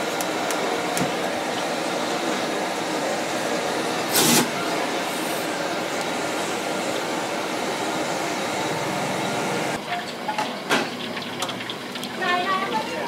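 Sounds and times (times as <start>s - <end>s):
gas burners rushing: 0.0s - 9.8s
loud burst of noise: 2.6s - 9.8s.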